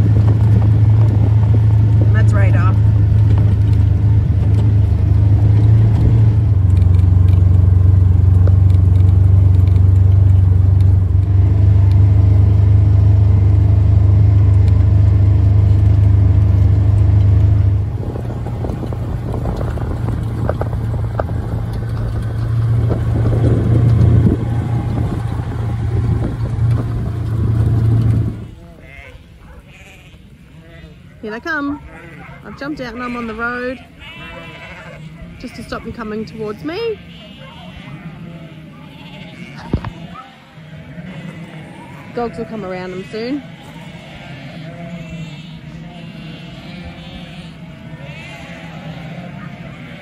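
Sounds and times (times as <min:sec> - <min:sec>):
vehicle engine drone: 0:00.0 - 0:30.5.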